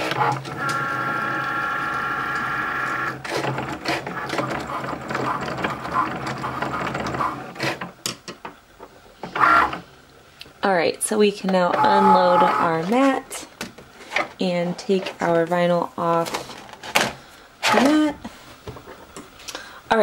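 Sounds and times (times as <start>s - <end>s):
cutting machine motors whining: 0.0s - 7.7s, 11.7s - 12.9s.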